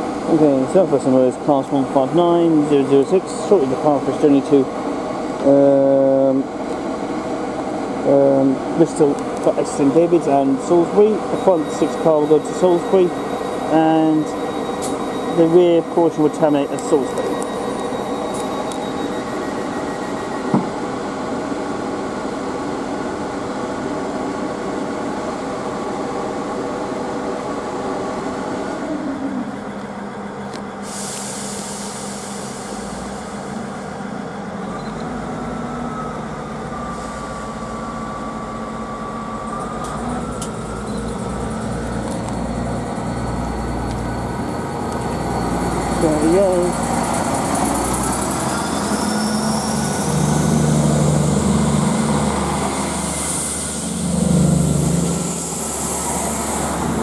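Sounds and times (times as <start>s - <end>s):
rising engine whine: 0.0s - 30.9s, 31.9s - 57.0s
diesel train engines: 0.0s - 57.0s
burst of hiss: 30.8s - 33.4s.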